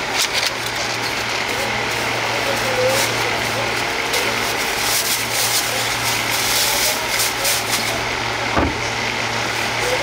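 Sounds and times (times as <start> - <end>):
street noise: 0.0 - 10.0
knock: 8.6 - 8.8.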